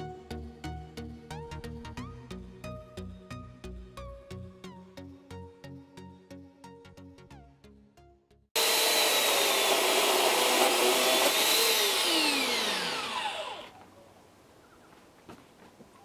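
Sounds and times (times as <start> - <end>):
background music: 0.0 - 8.5
electric chainsaw cutting log: 8.6 - 13.8.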